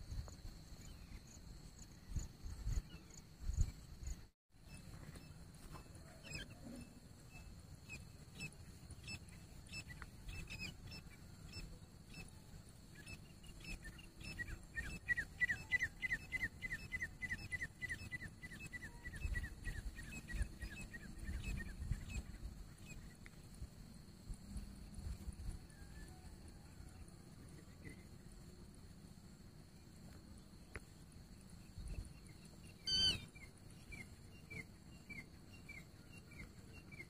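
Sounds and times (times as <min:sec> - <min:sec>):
bird whistled calls: 0:32.8 - 0:35.3.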